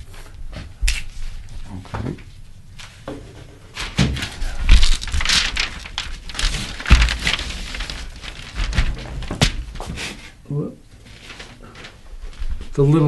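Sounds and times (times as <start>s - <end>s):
house wrap crinkling: 2.4s - 13.0s
wood knocking on wall: 6.4s - 7.6s.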